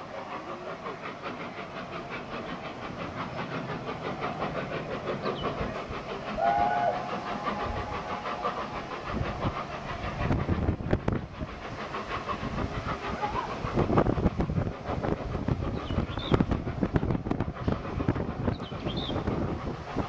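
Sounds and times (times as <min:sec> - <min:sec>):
steam locomotive exhaust and wheels: 0:00.0 - 0:20.0
locomotive whistle: 0:06.4 - 0:08.0.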